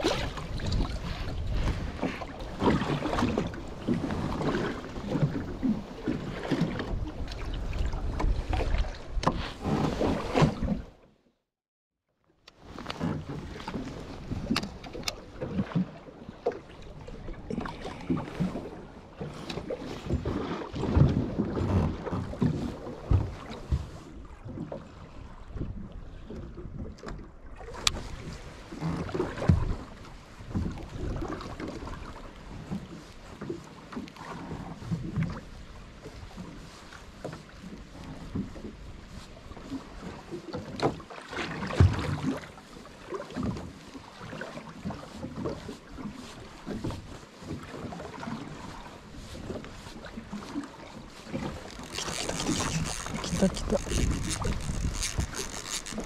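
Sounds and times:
wind on microphone: 0:00.0 - 0:10.8, 0:51.3 - 0:56.0
water slapping against boat hull: 0:00.0 - 0:11.0, 0:12.5 - 0:56.0.

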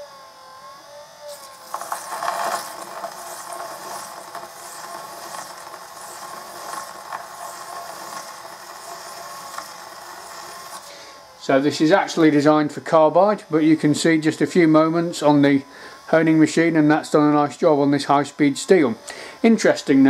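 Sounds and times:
motor humming: 0:00.0 - 0:20.0
steel rasping on diamond plate: 0:01.3 - 0:11.0.

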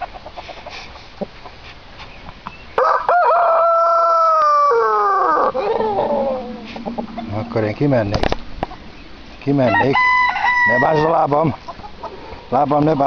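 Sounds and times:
rooster crowing: 0:02.8 - 0:07.3, 0:09.5 - 0:11.3.

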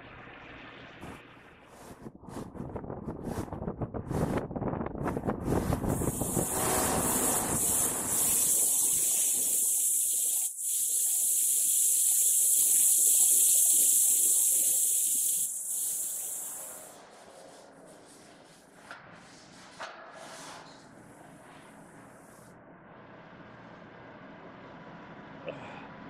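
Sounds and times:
lathe high-pitched hiss: 0:06.0 - 0:17.0.

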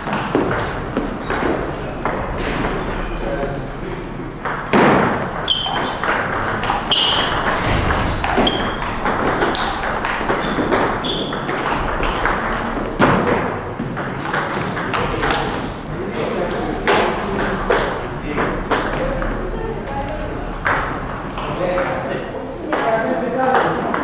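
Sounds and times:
table tennis ball pings: 0:04.4 - 0:07.6, 0:08.2 - 0:15.5.

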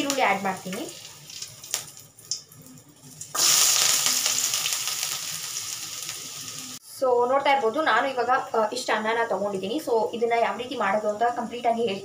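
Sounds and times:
onions sizzling in hot oil: 0:00.0 - 0:06.8.

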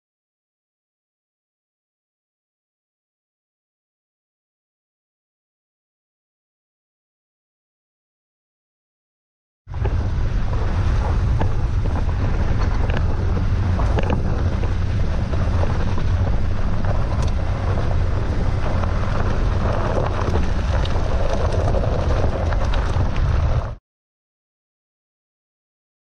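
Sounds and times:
tyres rolling on gravel: 0:09.7 - 0:23.8
wind buffeting microphone: 0:09.7 - 0:23.8
stones clicking against car: 0:09.8 - 0:23.8.

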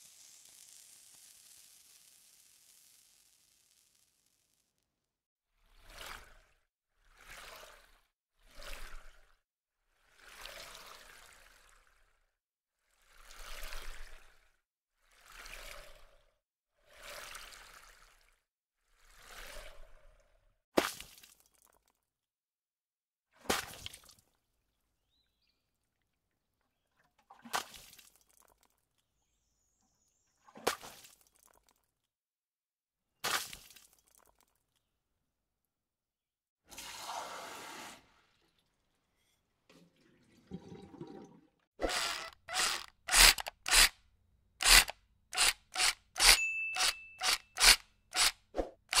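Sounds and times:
bell-like ding: 0:46.3 - 0:47.2.

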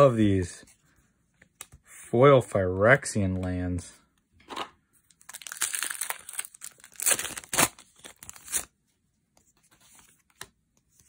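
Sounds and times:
cards and packaging rustling: 0:04.5 - 0:08.8.

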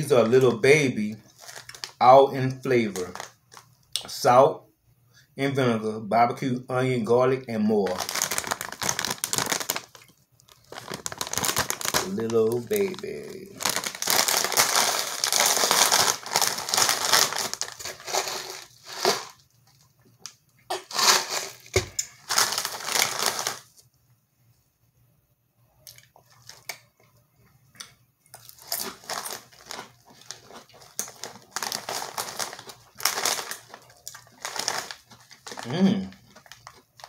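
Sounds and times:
chip bag crinkling: 0:00.1 - 0:03.7, 0:07.8 - 0:23.9, 0:26.0 - 0:26.8, 0:28.3 - 0:37.0.

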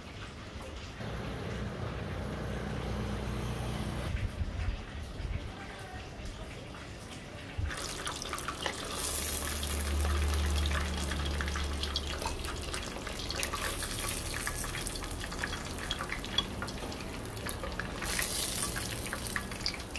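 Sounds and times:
chicken deep-frying in oil: 0:00.0 - 0:02.1, 0:04.1 - 0:19.9.

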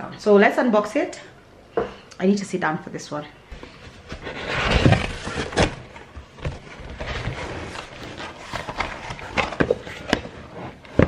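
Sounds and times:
cardboard and tape rustling: 0:03.5 - 0:11.0.

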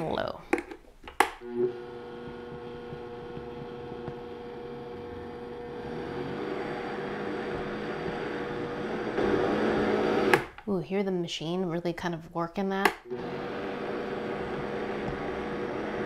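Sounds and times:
blender motor humming: 0:01.4 - 0:10.6, 0:13.1 - 0:16.0.

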